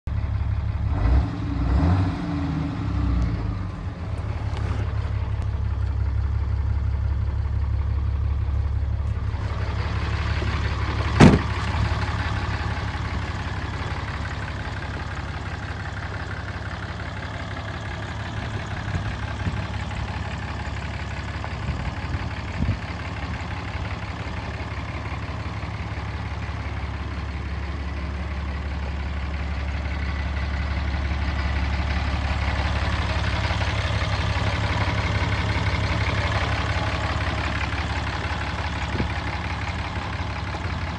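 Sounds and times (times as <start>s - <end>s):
diesel engine idling: 0.1s - 40.9s
sharp bang: 11.2s - 11.7s.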